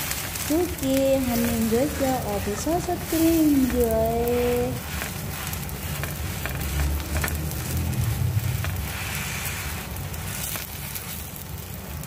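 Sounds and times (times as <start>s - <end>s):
crepe sizzling on griddle: 0.0s - 12.0s
low rumble: 0.0s - 12.0s
metal spatula taps and scrapes: 4.8s - 7.8s.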